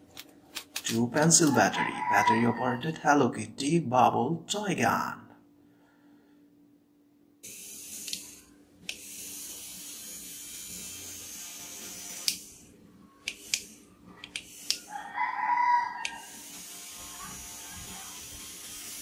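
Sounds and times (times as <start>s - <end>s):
small toy motor whirring: 7.4s - 19.0s.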